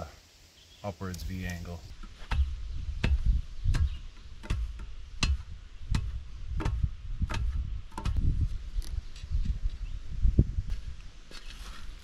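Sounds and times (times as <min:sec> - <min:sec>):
dull thuds of dirt tamping: 0:01.2 - 0:09.8.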